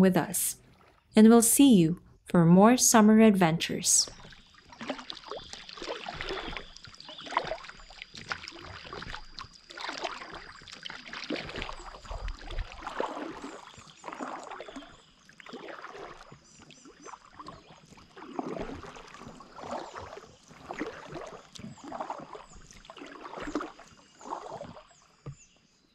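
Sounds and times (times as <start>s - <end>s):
paddle strokes splashing in water: 4.1s - 25.8s.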